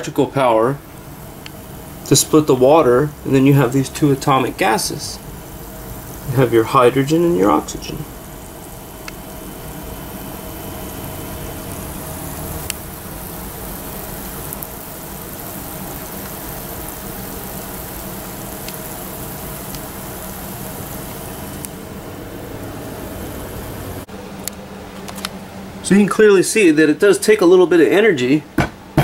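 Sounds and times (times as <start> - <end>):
low steady hum: 0.0 - 29.0
fizzing gas bubbles: 0.2 - 21.7.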